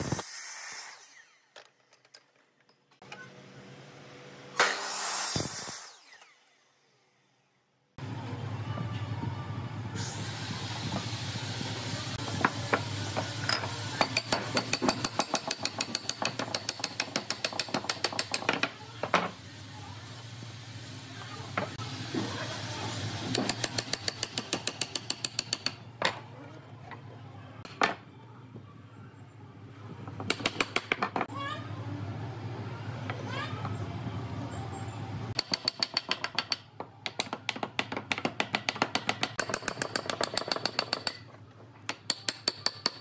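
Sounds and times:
wooden pieces knocking: 0:35.4 - 0:41.3.

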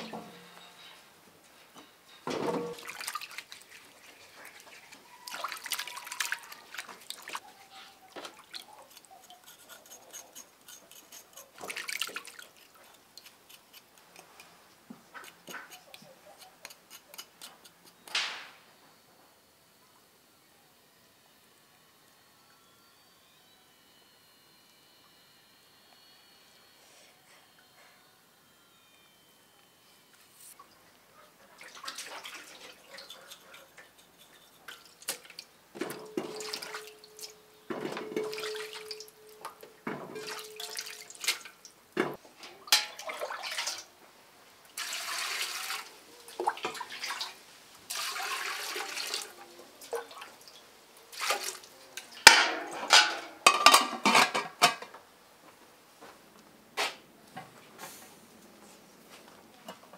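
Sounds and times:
metal pots clanking: 0:02.2 - 0:02.9, 0:37.7 - 0:39.0, 0:39.9 - 0:40.8, 0:42.0 - 0:43.1, 0:52.2 - 0:54.9
water splashing in metal basin: 0:02.6 - 0:04.6, 0:05.2 - 0:07.4, 0:11.6 - 0:12.6, 0:31.6 - 0:33.2, 0:34.7 - 0:37.3, 0:38.0 - 0:41.6, 0:42.6 - 0:43.9, 0:44.8 - 0:54.2
water pouring into metal pot: 0:44.8 - 0:45.9, 0:47.9 - 0:49.2.

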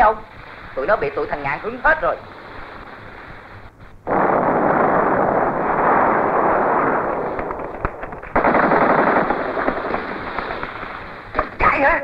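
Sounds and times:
machine-gun fire: 0:04.1 - 0:11.6
separate gunshots: 0:04.1 - 0:11.7.

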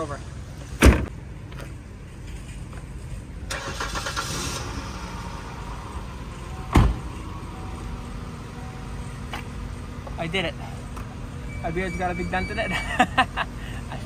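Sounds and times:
car door slamming: 0:00.8 - 0:01.1, 0:06.7 - 0:07.1
car engine idling: 0:03.0 - 0:12.0.

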